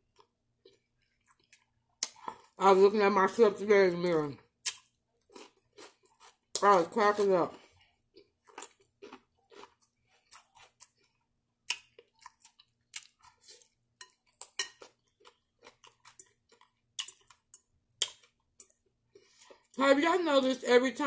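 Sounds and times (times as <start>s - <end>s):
crunchy chewing: 0.1s - 2.6s, 4.6s - 6.6s, 7.5s - 19.8s.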